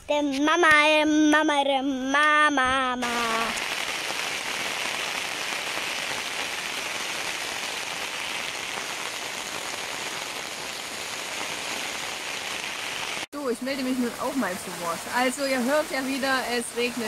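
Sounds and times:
rain falling on puddles: 0:03.0 - 0:17.0.

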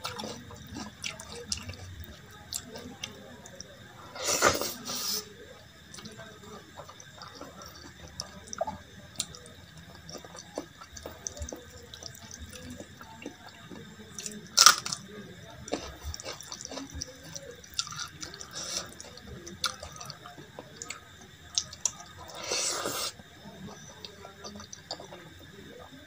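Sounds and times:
mouth smacking while chewing: 0:06.8 - 0:14.4.

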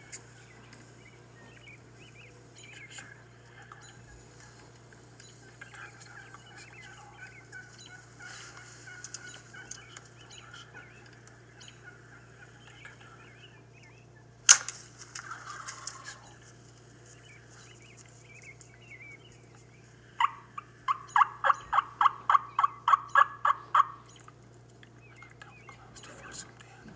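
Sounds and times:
steady low hum: 0:00.0 - 0:26.9
turkey gobbling: 0:02.6 - 0:13.4, 0:15.2 - 0:16.4, 0:18.9 - 0:26.4
rapid turkey yelps: 0:05.8 - 0:12.8, 0:15.2 - 0:16.4, 0:20.1 - 0:24.4.

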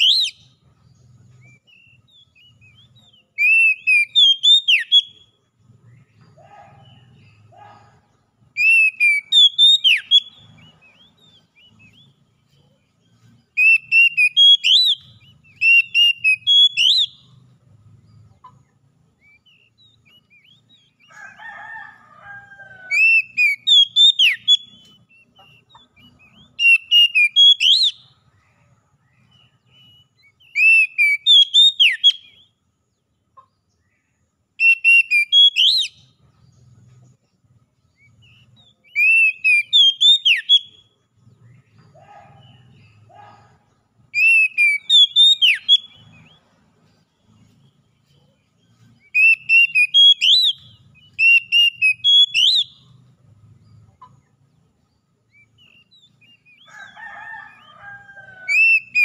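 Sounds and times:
bird singing whistled phrases: 0:00.0 - 0:00.6, 0:01.5 - 0:05.3, 0:08.6 - 0:12.2, 0:13.6 - 0:17.3, 0:19.2 - 0:21.0, 0:22.9 - 0:28.2, 0:29.2 - 0:32.5, 0:34.6 - 0:36.1, 0:38.0 - 0:40.9, 0:44.2 - 0:46.4, 0:49.0 - 0:52.9, 0:58.5 - 0:59.0.

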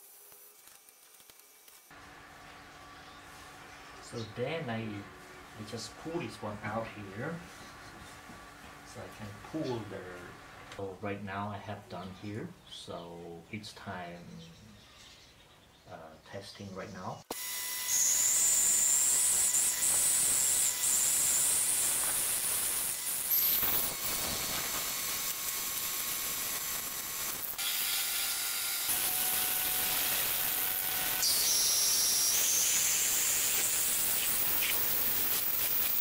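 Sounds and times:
drill bit grinding steel: 0:17.3 - 0:36.0.

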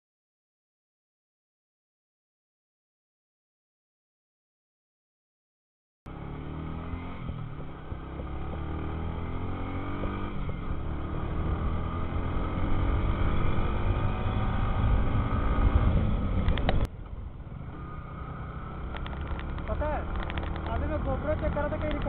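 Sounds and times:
motorcycle engine accelerating: 0:06.1 - 0:22.0.

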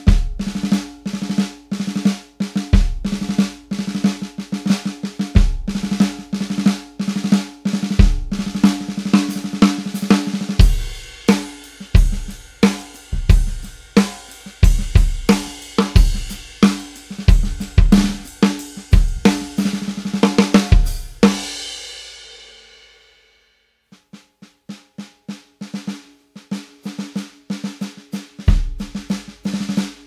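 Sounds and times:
drum kit groove: 0:00.0 - 0:23.0, 0:23.9 - 0:30.0
snare drum buzzing: 0:07.9 - 0:21.7.

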